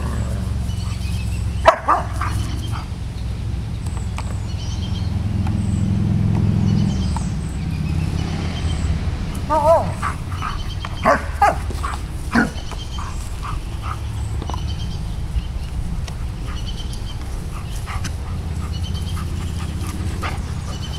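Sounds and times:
steady low rumble: 0.0 - 20.9
dog barking: 1.6 - 2.9, 9.5 - 13.1
dogs scuffling: 9.4 - 20.9.

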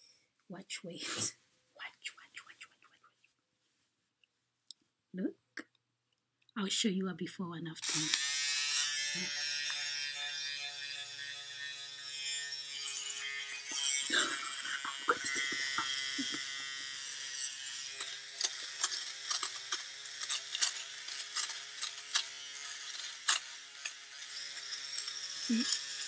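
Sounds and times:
fabric shaver motor humming: 7.8 - 26.0.

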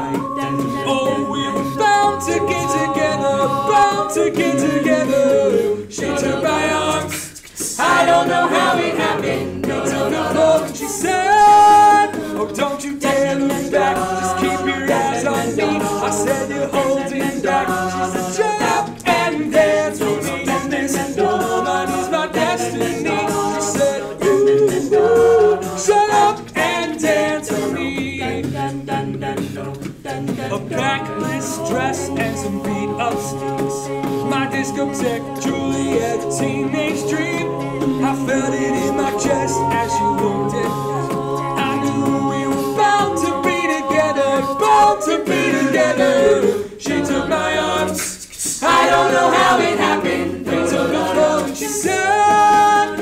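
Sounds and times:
sung bass line: 0.0 - 7.0
beatboxed vocal percussion: 0.0 - 53.0
group singing wordless syllables: 0.0 - 53.0.

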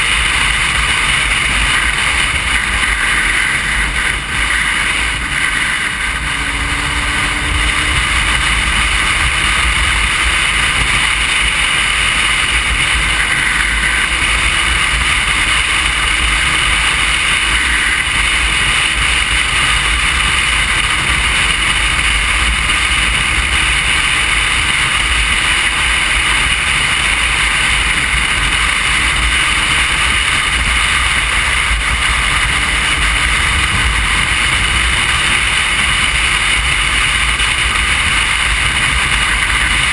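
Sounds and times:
wind rushing: 0.0 - 16.8
faint motorcycle engine: 0.0 - 39.9
road noise: 0.0 - 39.9.

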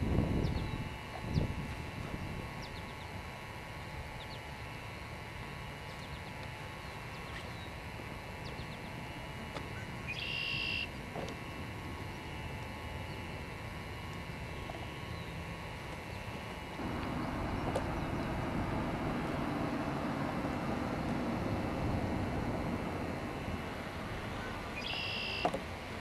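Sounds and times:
short buzzy high call: 10.2 - 10.9, 24.3 - 25.5
steady low rumble: 15.8 - 26.0.

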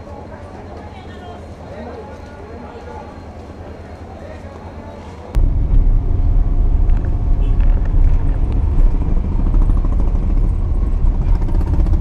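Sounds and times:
tyres on road: 0.0 - 12.0
car engine rumble: 5.3 - 12.0.

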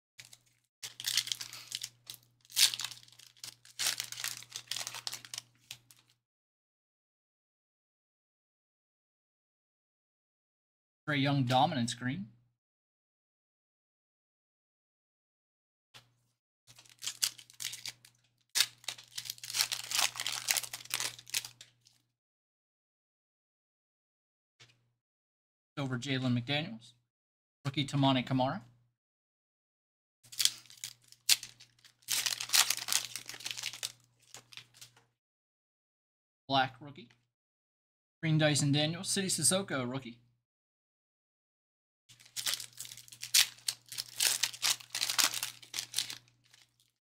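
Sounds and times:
foil wrapper tearing and crinkling: 0.2 - 6.2, 16.7 - 21.7, 30.3 - 35.0, 42.1 - 47.0.

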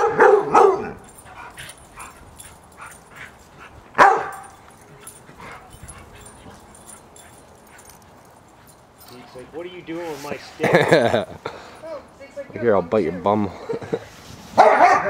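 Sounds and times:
large dog barking: 0.0 - 2.9, 3.9 - 6.4, 14.6 - 15.0.

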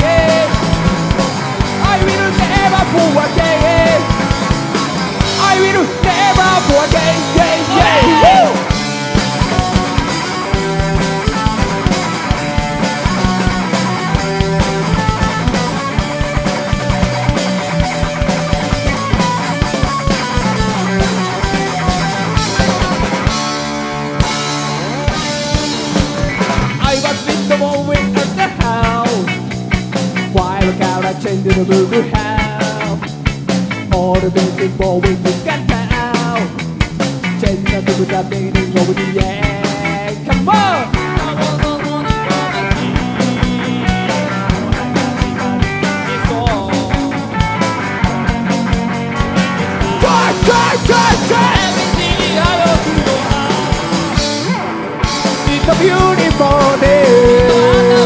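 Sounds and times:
drum kit beat: 0.0 - 58.0
electric guitar: 0.0 - 58.0
rock band playing: 0.0 - 58.0.

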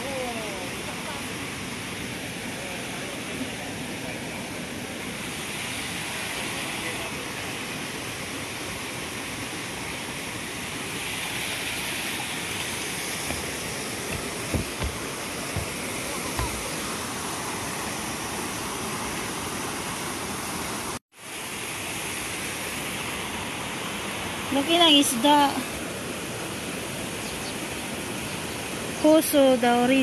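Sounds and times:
water rushing through channels: 0.0 - 30.0
soft low knocks: 13.2 - 15.8.

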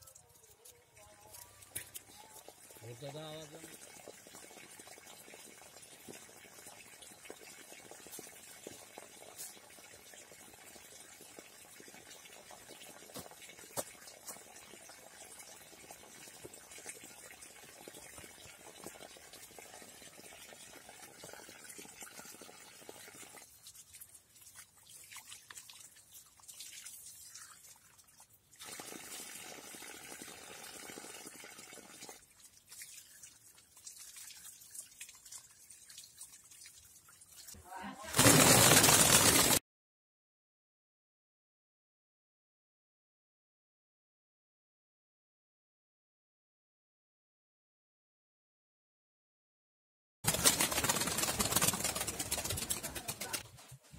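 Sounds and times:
tap water splashing on ground: 0.0 - 9.8, 11.9 - 15.6, 23.6 - 28.3.

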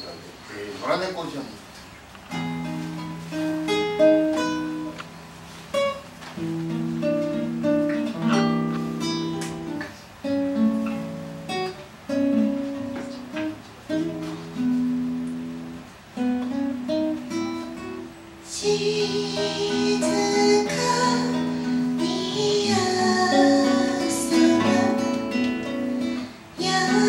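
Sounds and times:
acoustic guitar chords: 2.2 - 27.0
woman singing: 18.4 - 27.0.

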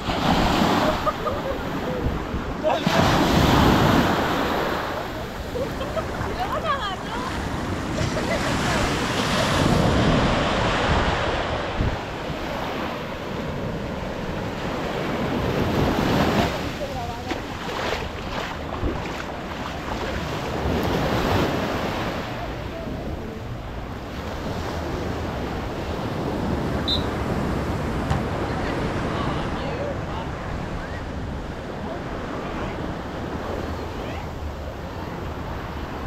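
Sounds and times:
surf breaking on a beach: 0.0 - 36.0
wind buffeting the microphone: 5.2 - 21.6.

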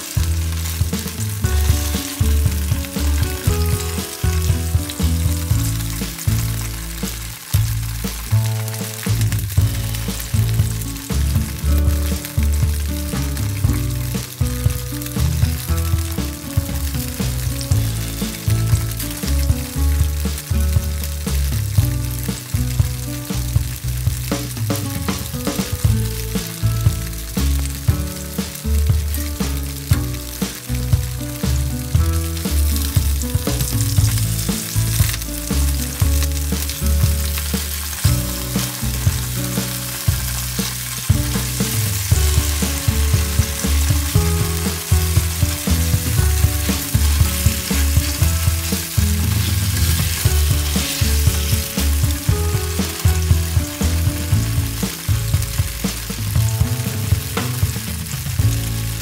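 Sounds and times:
background music with bass: 0.0 - 59.0
tofu sizzling in oil: 0.0 - 59.0.

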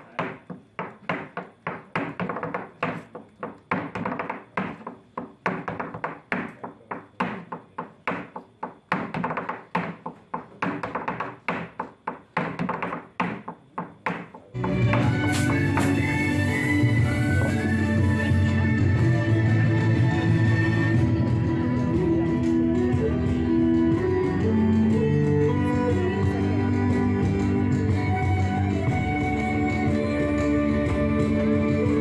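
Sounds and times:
dance shoes tapping on wood: 0.0 - 16.1.

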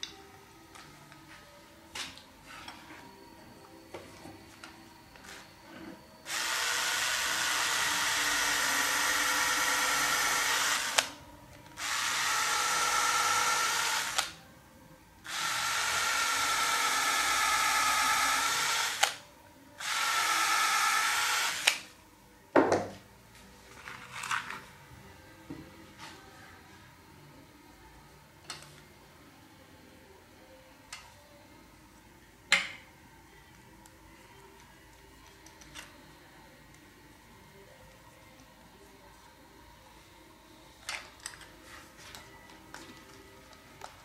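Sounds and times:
cordless drill boring into wood: 6.3 - 11.1, 11.8 - 14.3, 15.3 - 19.2, 19.8 - 21.8.

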